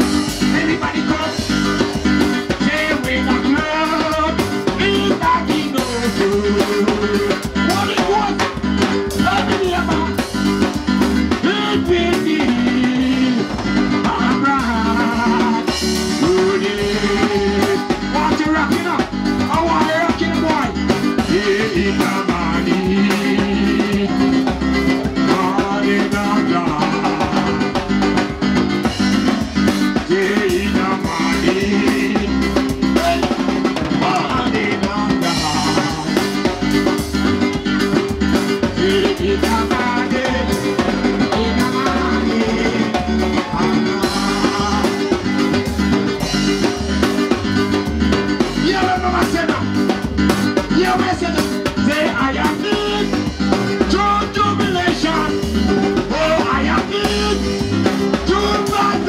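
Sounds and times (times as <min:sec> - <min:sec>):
drum kit dance beat: 0:00.0 - 0:59.0
keyboard playing: 0:00.0 - 0:59.0.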